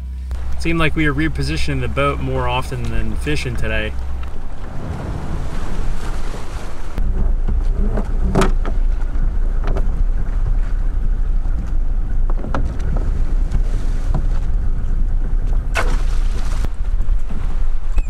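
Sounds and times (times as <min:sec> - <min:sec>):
wind rumble on microphone: 0:00.0 - 0:18.0.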